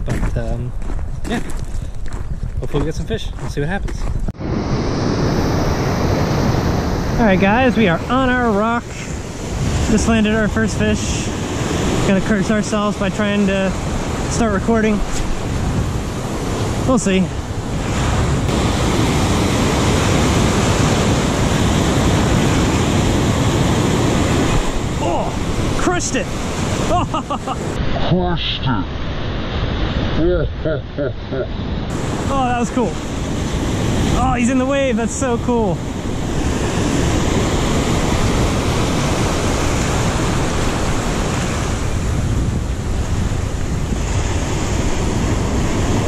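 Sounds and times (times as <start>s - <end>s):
surf breaking over rocks: 4.4s - 30.2s, 31.8s - 46.0s.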